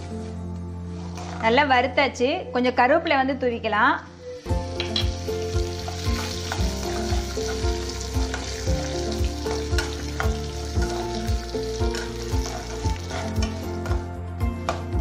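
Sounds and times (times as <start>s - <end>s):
spatula scraping a pan: 0.9s - 1.5s, 9.4s - 14.1s
background music with steady beat: 4.0s - 15.0s
food sizzling in hot oil: 4.2s - 14.0s.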